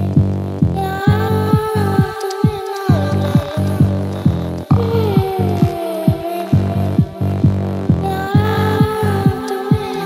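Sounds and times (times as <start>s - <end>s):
sustained bass: 0.0s - 2.1s, 2.9s - 5.9s, 6.5s - 9.4s
four-on-the-floor kick drum: 0.0s - 10.0s.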